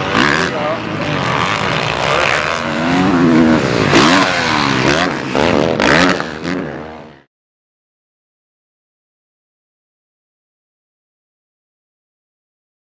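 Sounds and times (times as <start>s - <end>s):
motocross engine revving: 0.0s - 7.3s.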